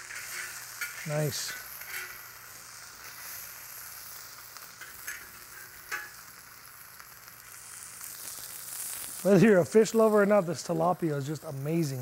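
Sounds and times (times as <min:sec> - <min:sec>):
fish sizzling in oil: 0:00.0 - 0:12.0
metal spatula clicking on pan: 0:05.9 - 0:06.2.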